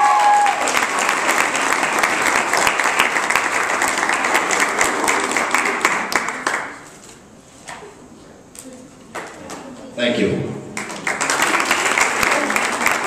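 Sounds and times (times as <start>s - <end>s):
audience applauding: 0.0s - 6.8s, 10.8s - 13.0s.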